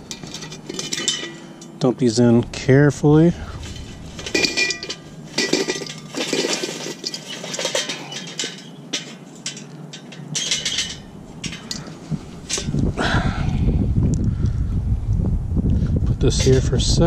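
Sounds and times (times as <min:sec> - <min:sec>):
charcoal clattering onto grate: 0:00.0 - 0:01.8, 0:03.4 - 0:12.8, 0:16.3 - 0:16.8.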